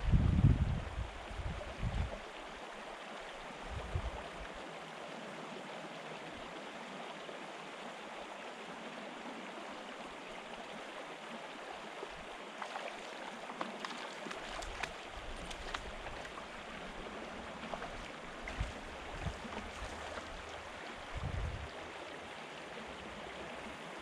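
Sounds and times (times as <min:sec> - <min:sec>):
stream rushing over stones: 0:01.0 - 0:24.0
faint clicks: 0:13.5 - 0:16.4.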